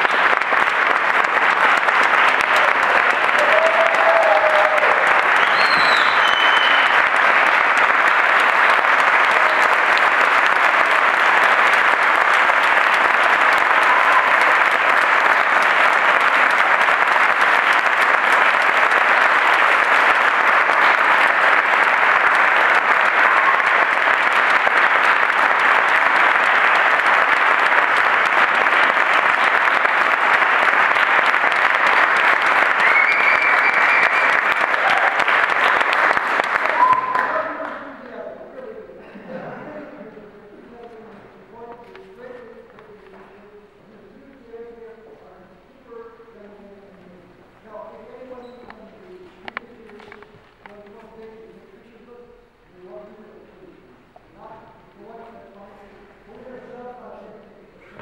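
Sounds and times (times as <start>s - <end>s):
large audience applauding: 0.0s - 38.2s.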